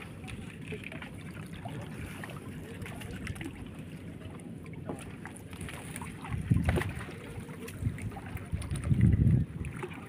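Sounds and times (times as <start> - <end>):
wind buffeting microphone: 6.2 - 10.0.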